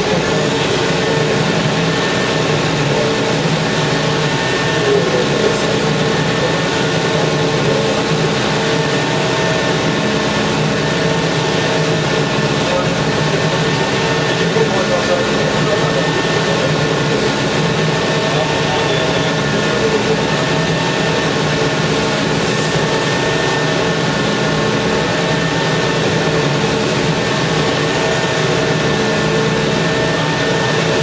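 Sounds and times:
heavy machinery droning: 0.0s - 31.0s.

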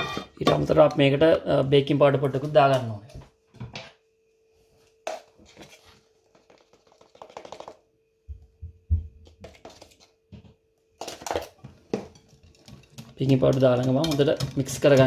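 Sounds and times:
kitchen utensils clicking and tapping: 11.0s - 15.0s.

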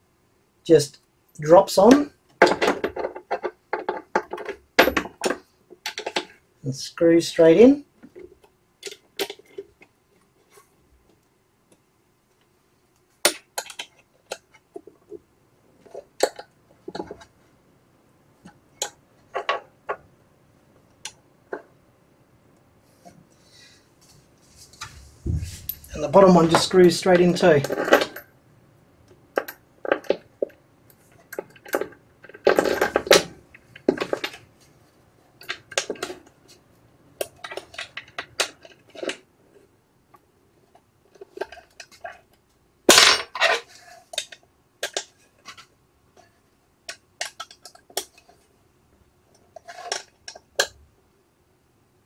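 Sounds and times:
metallic clatters: 25.2s - 28.3s.

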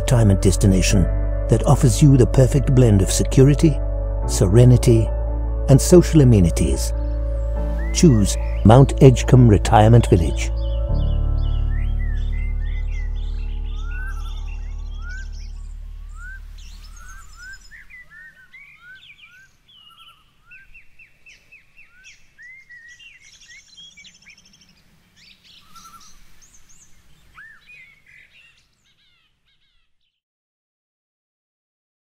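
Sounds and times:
background music chord: 0.0s - 17.7s
birds singing and chirping: 0.0s - 30.2s.

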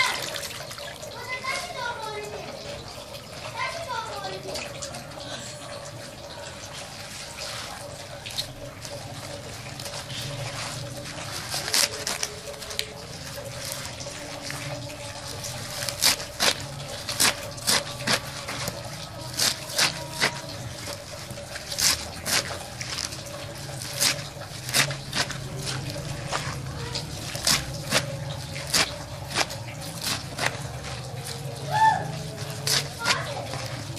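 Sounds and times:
leaves rustling: 6.9s - 33.9s
knife chopping leafy greens: 7.0s - 33.9s.

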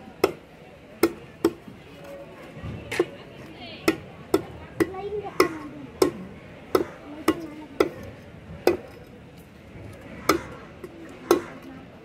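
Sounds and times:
cleaver chopping on wooden block: 0.2s - 1.7s, 3.8s - 9.0s, 10.2s - 10.6s, 11.2s - 11.7s.

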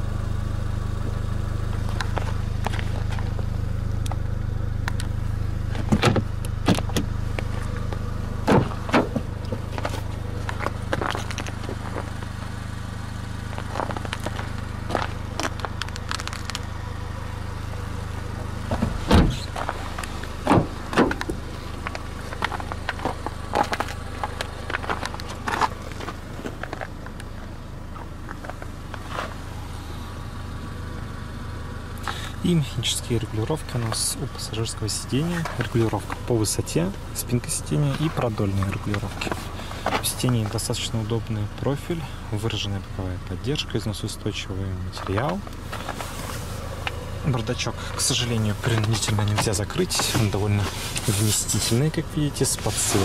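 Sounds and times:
steady low hum: 0.0s - 53.0s
clicks and knocks on car body: 5.7s - 12.3s, 18.7s - 27.3s.

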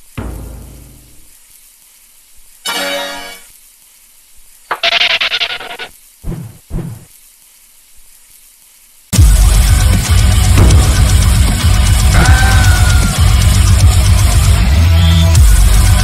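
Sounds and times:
dull thuds: 0.0s - 1.4s, 6.2s - 7.1s.

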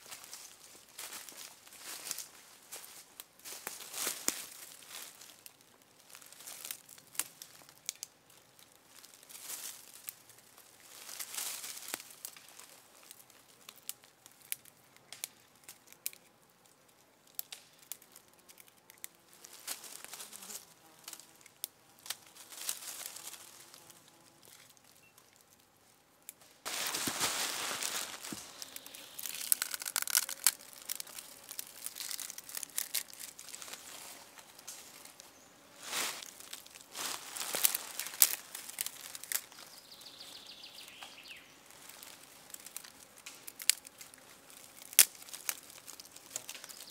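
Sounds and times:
dry leaves rustling and crunching: 0.0s - 16.2s, 17.3s - 25.5s, 26.4s - 46.9s
small twig snaps: 3.4s - 8.1s, 11.1s - 19.1s, 27.8s - 35.3s, 36.2s - 39.7s, 40.9s - 46.9s.

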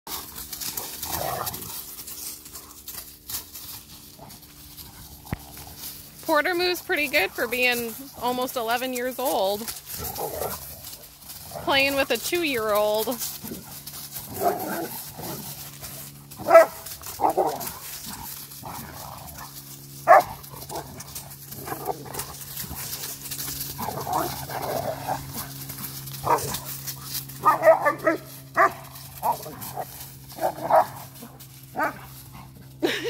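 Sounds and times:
dogs play growling: 0.1s - 6.2s, 9.6s - 12.2s, 13.1s - 33.0s
dogs barking: 13.5s - 15.4s, 16.2s - 23.0s, 23.7s - 32.6s.

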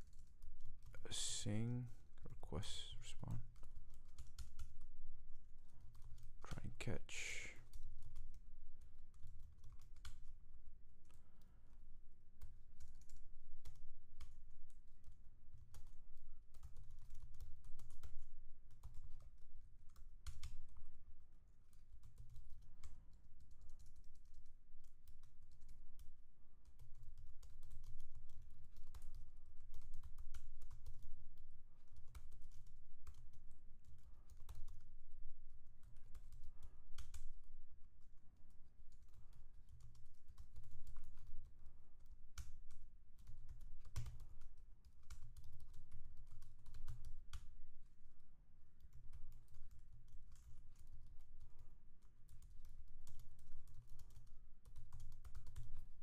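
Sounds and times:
computer keyboard typing: 0.0s - 4.9s, 5.8s - 10.4s, 12.4s - 20.9s, 21.9s - 34.9s, 35.8s - 37.4s, 38.9s - 47.5s, 48.8s - 55.9s.

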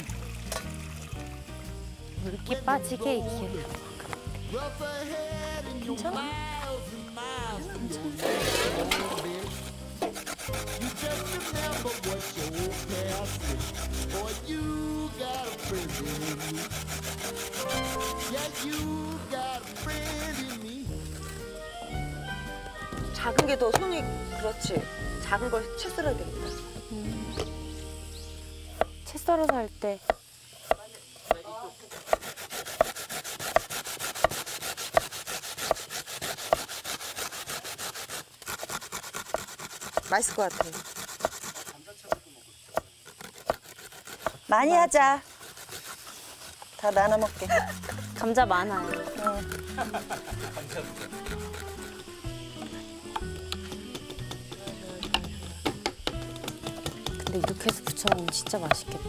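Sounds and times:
potatoes rasping on plastic grater: 8.2s - 21.6s, 29.3s - 59.0s
knife chopping on wooden board: 23.2s - 24.0s, 28.7s - 36.9s, 39.1s - 44.4s, 53.1s - 59.0s.

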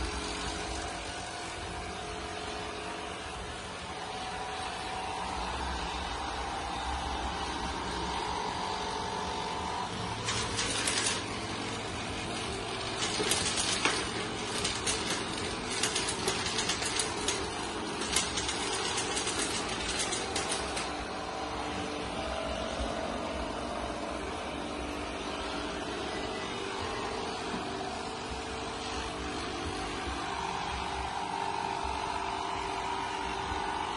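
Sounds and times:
robot vacuum whirring hum: 0.0s - 32.0s
irregular crackling clicks: 10.2s - 11.4s, 12.8s - 21.0s.

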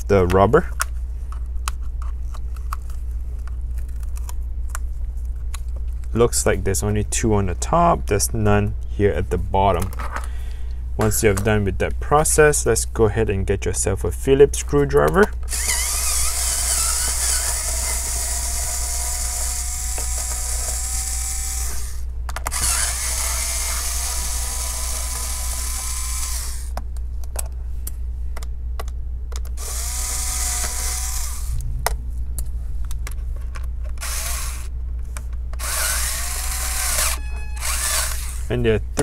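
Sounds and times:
electric screwdriver whirring: 15.5s - 26.7s, 29.6s - 31.6s, 34.0s - 34.7s, 35.6s - 38.5s.

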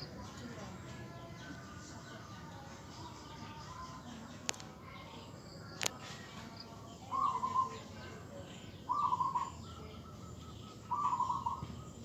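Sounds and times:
bird calling: 7.0s - 8.0s, 8.7s - 12.0s.

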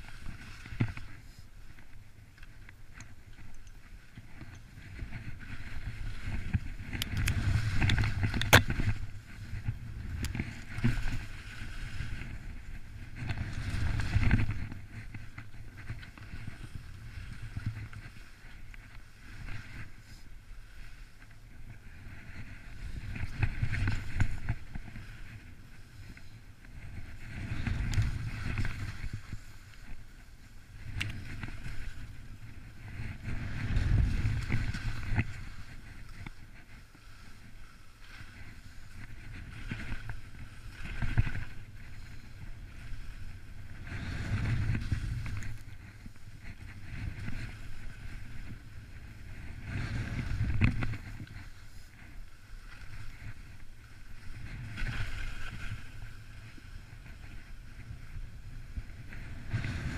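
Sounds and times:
wind rushing over microphone: 0.0s - 59.9s.

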